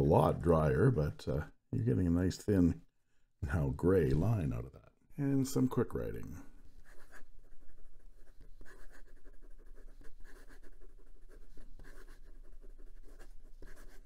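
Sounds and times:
fountain pen scratching on paper: 0:06.7 - 0:14.0.

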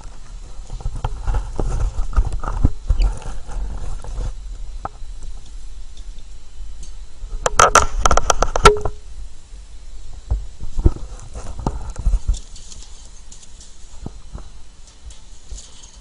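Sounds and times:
wire birdcage rattling: 0:12.0 - 0:14.1, 0:14.8 - 0:16.0.

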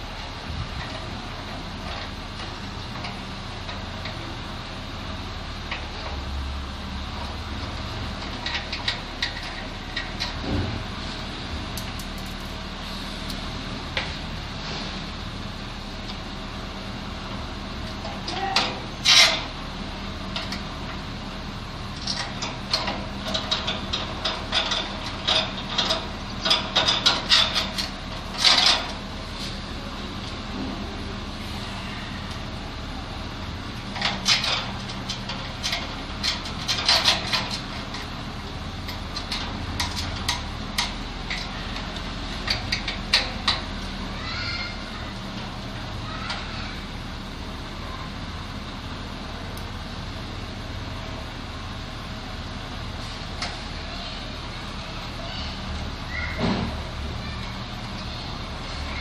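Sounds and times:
metal tools clinking and scraping: 0:34.0 - 0:38.1.

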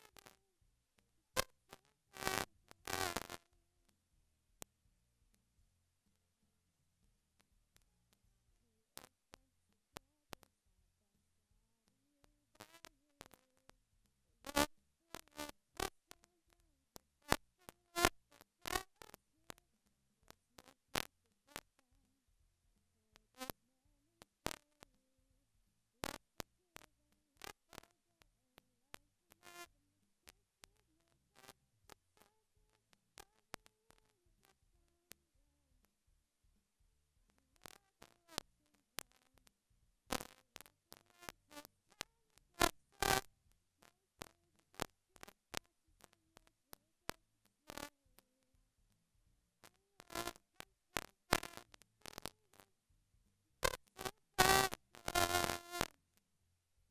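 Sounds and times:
sharp clicks and crackles: 0:01.0 - 0:03.6, 0:14.4 - 0:21.8, 0:24.2 - 0:25.0, 0:26.0 - 0:29.7, 0:30.3 - 0:35.2, 0:37.3 - 0:48.3, 0:49.6 - 0:52.7, 0:53.6 - 0:56.2.

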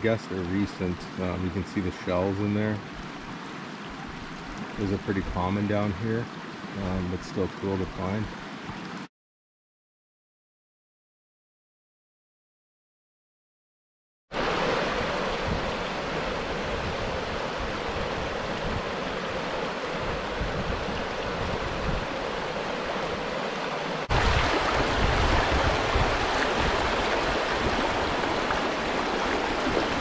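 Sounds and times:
river rushing over rocks: 0:14.4 - 0:30.0.

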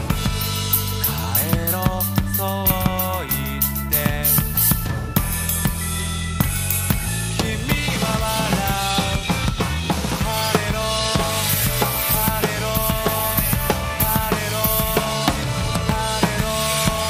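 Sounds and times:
acoustic drum kit: 0:00.0 - 0:17.0
guitars: 0:00.0 - 0:17.0
person singing: 0:00.9 - 0:04.8, 0:07.4 - 0:17.0.

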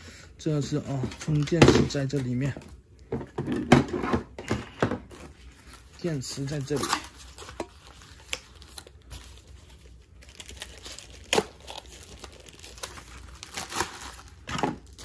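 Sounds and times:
plastic bag crinkling: 0:05.6 - 0:15.0.

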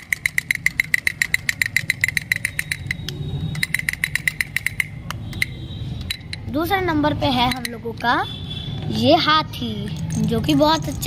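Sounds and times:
toy drum tapping: 0:00.0 - 0:06.6, 0:07.4 - 0:07.9.

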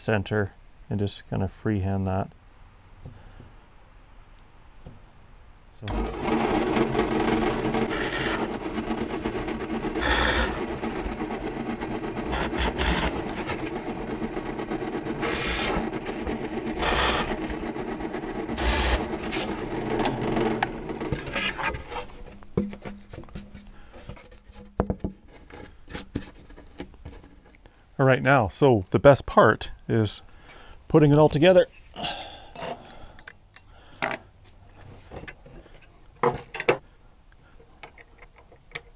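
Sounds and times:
drill press boring through plywood: 0:05.8 - 0:22.2.

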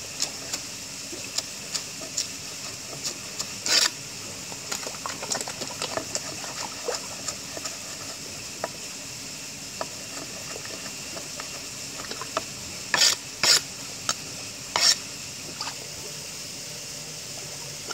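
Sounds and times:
knife scraping across board: 0:03.6 - 0:04.0, 0:12.9 - 0:13.6, 0:14.7 - 0:15.0.

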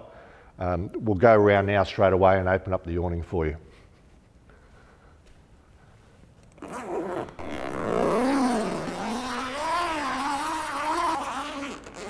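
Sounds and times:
zipper rasping open: 0:06.6 - 0:12.0.

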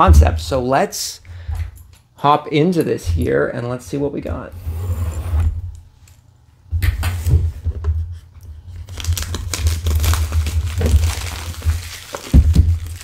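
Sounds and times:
plastic shrink wrap crinkling: 0:08.7 - 0:13.0.

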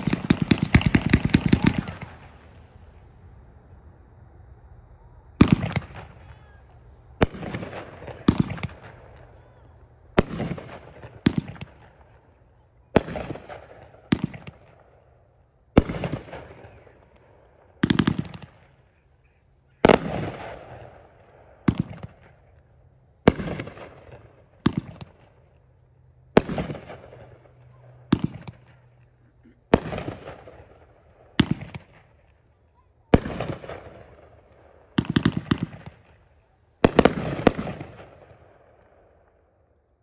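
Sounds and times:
fireworks bangs echoing: 0:00.0 - 0:03.4, 0:05.3 - 0:32.4, 0:33.0 - 0:39.2.

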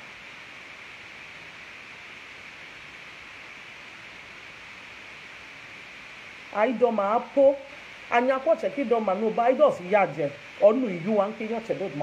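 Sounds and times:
steady background hiss: 0:00.0 - 0:12.0.

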